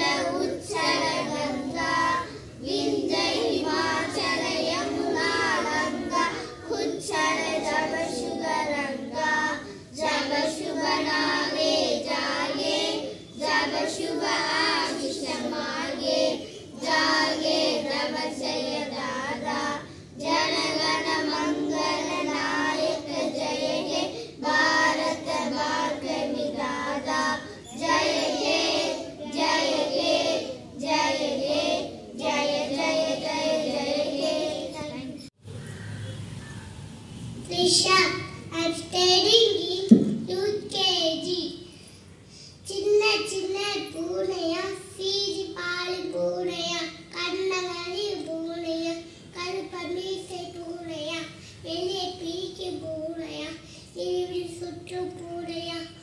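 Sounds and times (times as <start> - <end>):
children singing: 0.0 - 35.0.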